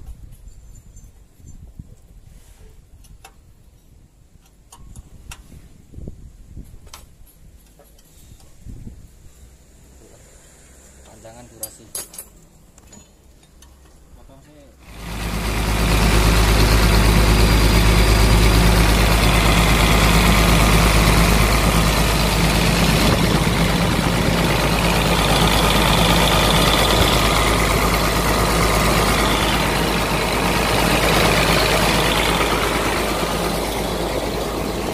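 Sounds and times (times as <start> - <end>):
excavator diesel engine running: 14.8 - 34.9.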